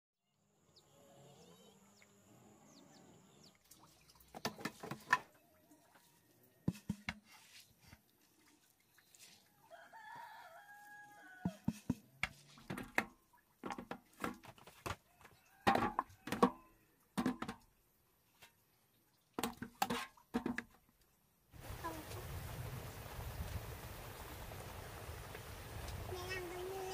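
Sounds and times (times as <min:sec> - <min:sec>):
rooster crowing: 0:09.6 - 0:11.7.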